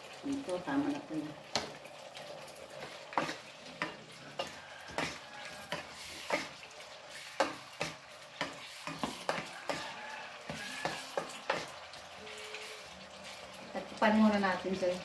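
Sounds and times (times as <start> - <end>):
meat sizzling in pot: 0.0 - 15.0
spatula scraping pot: 2.5 - 13.9.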